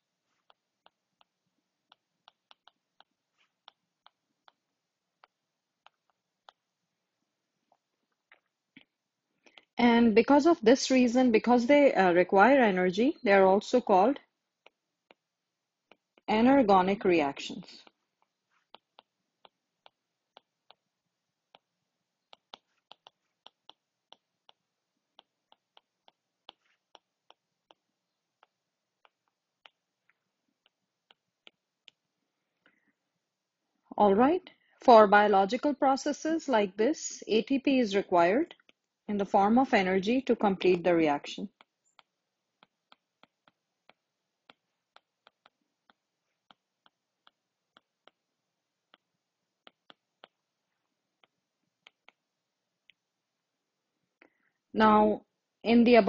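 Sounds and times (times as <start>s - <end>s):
stylus tapping on tablet screen: 0.0s - 6.8s, 13.8s - 32.1s, 38.4s - 50.5s, 51.1s - 53.0s
stylus scratching: 15.9s - 20.9s, 22.3s - 29.9s.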